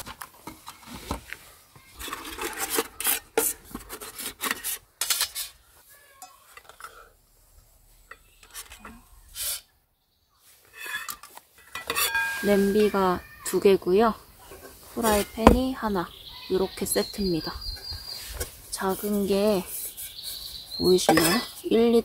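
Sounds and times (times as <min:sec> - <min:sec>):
metal pots clinking and scraping: 0:01.9 - 0:05.6, 0:06.2 - 0:07.2, 0:07.9 - 0:09.7, 0:10.6 - 0:13.7, 0:14.4 - 0:15.8, 0:21.0 - 0:21.6.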